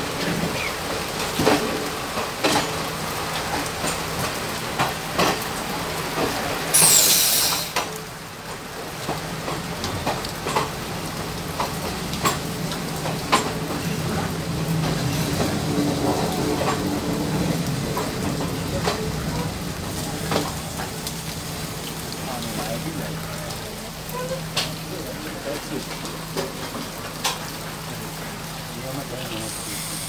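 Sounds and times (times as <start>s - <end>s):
train running on rails: 0.0s - 30.0s
loud hiss with falling whistle: 6.7s - 7.7s.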